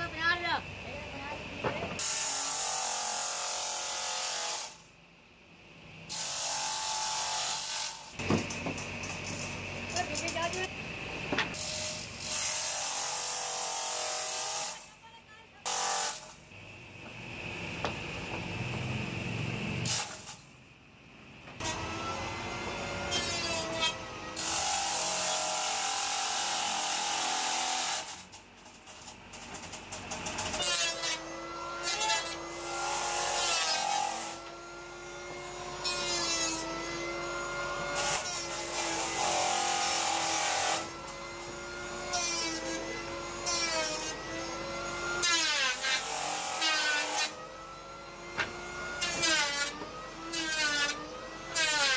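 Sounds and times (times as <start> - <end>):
planer blades shaving wood: 30.2 - 51.9.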